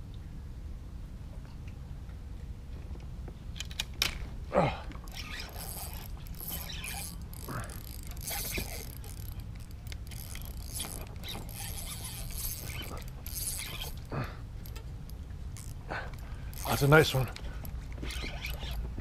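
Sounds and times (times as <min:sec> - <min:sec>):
steady low rumble: 0:04.2 - 0:19.0
fishing reel ratcheting whir: 0:05.1 - 0:19.0.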